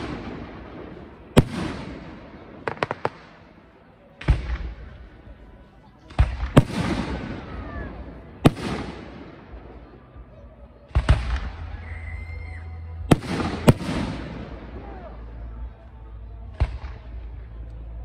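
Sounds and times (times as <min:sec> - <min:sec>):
firework shells bursting: 0:01.4 - 0:03.4.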